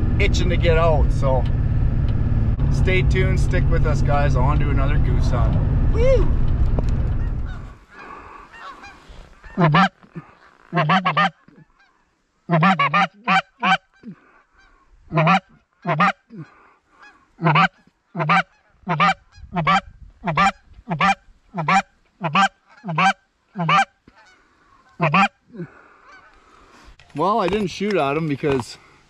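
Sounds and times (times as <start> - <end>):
goose honking: 7.2 - 26.6.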